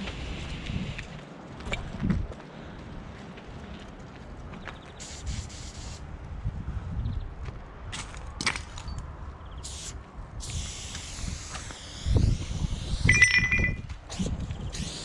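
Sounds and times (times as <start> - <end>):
spray paint can hissing: 0.0 - 1.1, 5.0 - 6.1, 9.6 - 15.0.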